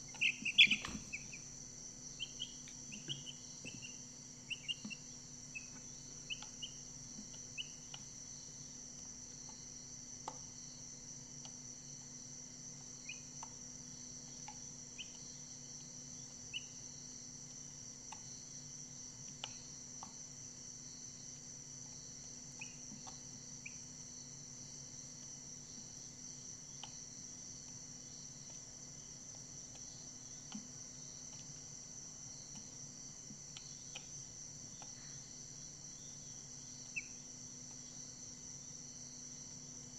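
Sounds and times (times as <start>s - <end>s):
crickets chirping: 0.0s - 39.9s
chicks peeping: 0.1s - 1.5s, 2.1s - 6.8s
light ticks: 5.6s - 8.1s, 14.4s - 15.2s, 19.2s - 20.2s, 26.8s - 27.0s, 33.3s - 35.0s.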